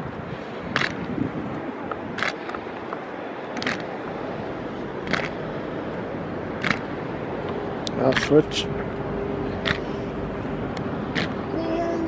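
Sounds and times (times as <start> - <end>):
wind noise: 0.0 - 8.3.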